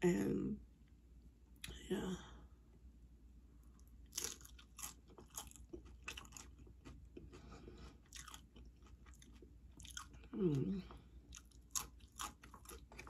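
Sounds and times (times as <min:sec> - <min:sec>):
person chewing crunchy chips: 0:03.8 - 0:13.0.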